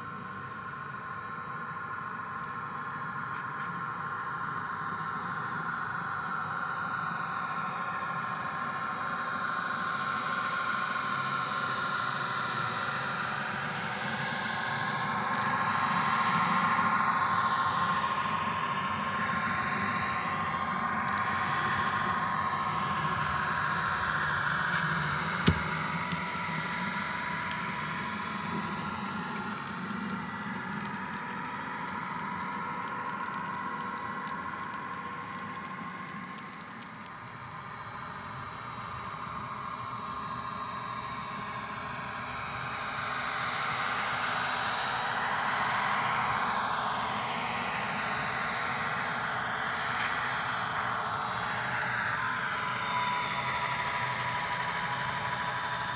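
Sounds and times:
model train mechanical whir: 0.0 - 55.9.

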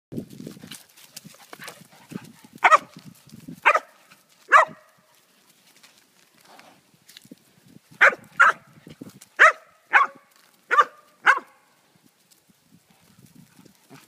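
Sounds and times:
dog barking: 2.6 - 2.9, 3.6 - 4.9, 8.0 - 8.7, 9.4 - 11.6.

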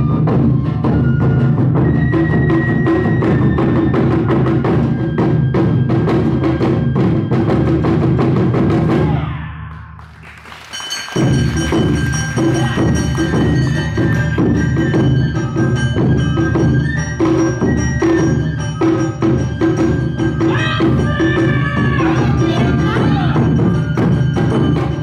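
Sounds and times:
bamboo flute melody: 0.0 - 10.0, 10.7 - 25.0
taiko drums: 0.0 - 25.0
clanging gong: 10.8 - 16.7
plucked shamisen: 10.9 - 25.0.

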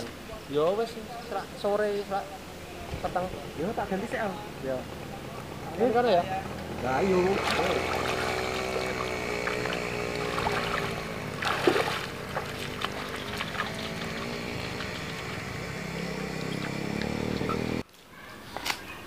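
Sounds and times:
steady droning hum: 3.4 - 17.8
feet splashing through water: 7.2 - 15.3.

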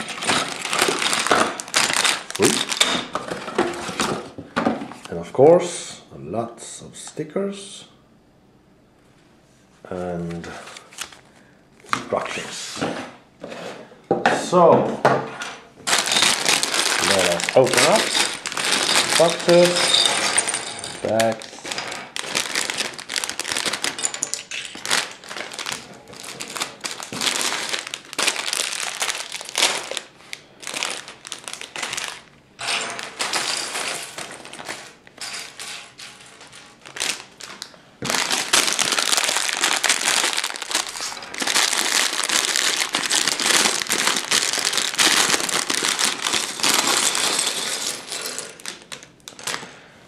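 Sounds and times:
plastic bags tearing and crinkling: 0.0 - 4.4, 15.8 - 49.8.

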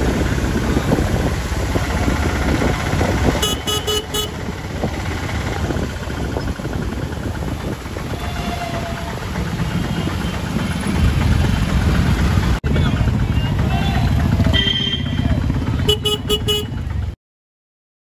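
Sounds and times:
auto-rickshaw engine running: 0.0 - 17.2
vehicle horn tooting: 3.4 - 4.5, 8.1 - 10.6, 13.4 - 16.9.

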